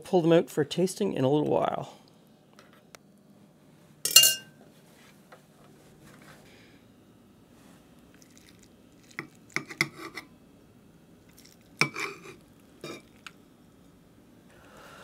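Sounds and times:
knife clinking on ceramic plate: 4.1 - 4.6.

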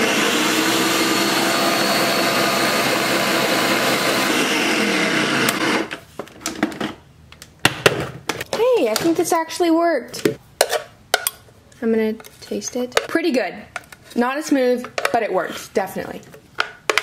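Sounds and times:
blender motor winding down: 0.0 - 6.0.

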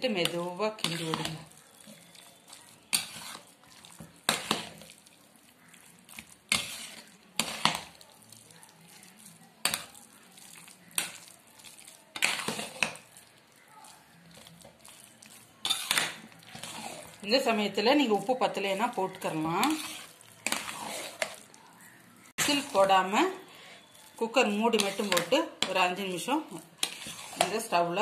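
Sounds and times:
spoon scraping and knocking pot: 0.2 - 2.1, 2.8 - 4.8, 6.2 - 8.0, 9.6 - 10.0, 12.2 - 13.1, 15.6 - 17.7, 19.0 - 21.4, 23.8 - 27.9.

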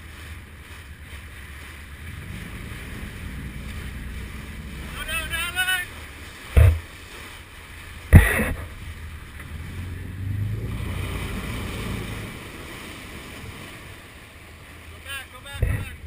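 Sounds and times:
boat engine rumble: 0.0 - 16.0
water churning and splashing: 0.0 - 16.0
sharp thumps: 6.5 - 6.9, 8.1 - 8.8.

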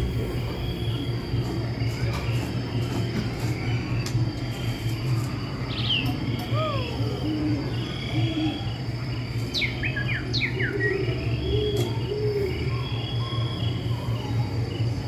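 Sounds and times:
crickets chirping: 0.0 - 15.0
steady low hum: 0.0 - 15.0
bird twittering: 3.0 - 14.4.

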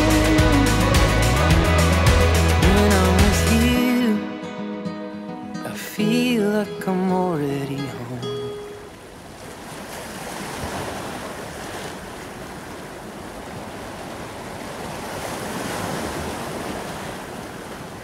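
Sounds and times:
waves washing in: 5.7 - 18.0.

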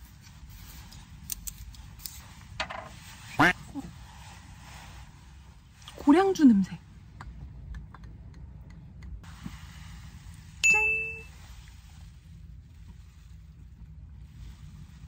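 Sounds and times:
bright bell ding: 10.6 - 11.3.

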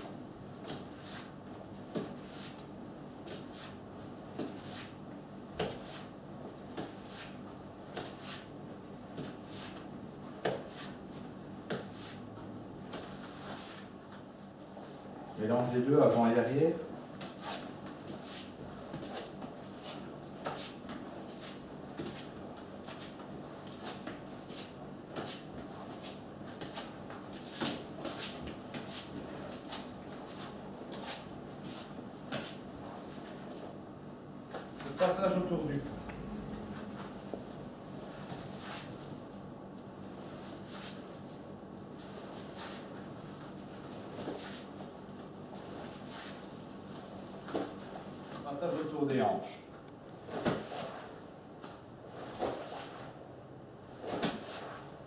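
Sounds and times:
nunchaku swishing through air: 52.2 - 53.2, 54.0 - 55.0
nunchaku swishing: 54.0 - 54.9.

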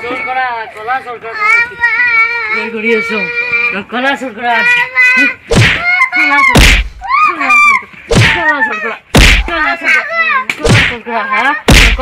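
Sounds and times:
child wailing and crying: 1.4 - 3.8
sharp smacks: 5.5 - 6.0, 6.6 - 7.1, 8.1 - 8.4, 9.2 - 9.6, 10.4 - 11.0, 11.7 - 12.0.

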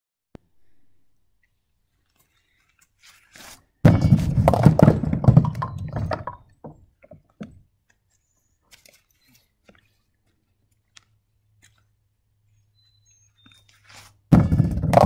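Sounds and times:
bowling ball rolling on wooden lane: 3.9 - 6.8, 14.4 - 15.0
bowling pins crashing: 3.9 - 6.8, 14.3 - 15.0
pins toppling knocks: 3.9 - 7.6.

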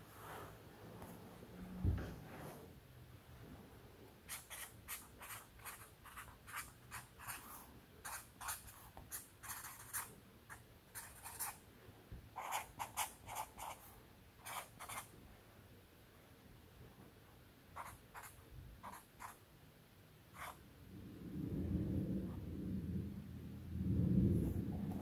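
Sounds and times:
marker writing on paper: 4.3 - 11.6, 12.4 - 13.8, 14.4 - 15.1, 17.8 - 19.4, 20.4 - 20.6.

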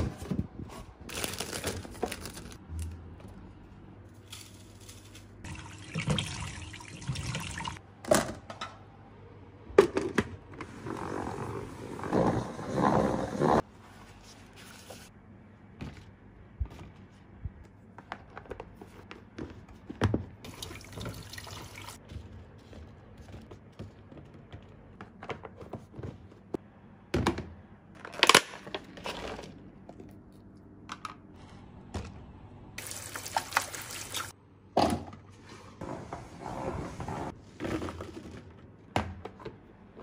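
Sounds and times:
tap water running: 5.4 - 7.8, 20.4 - 22.0, 32.8 - 34.3.

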